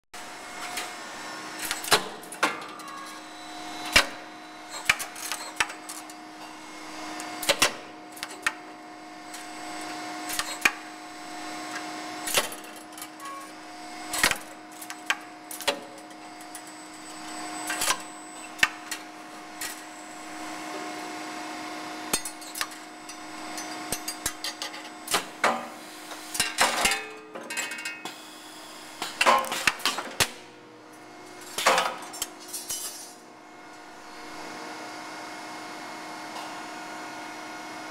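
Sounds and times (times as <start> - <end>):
machine hum: 0.2 - 26.8.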